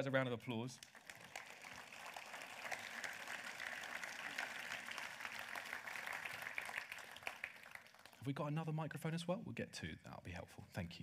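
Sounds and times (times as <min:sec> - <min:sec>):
audience applauding: 0:00.8 - 0:08.3.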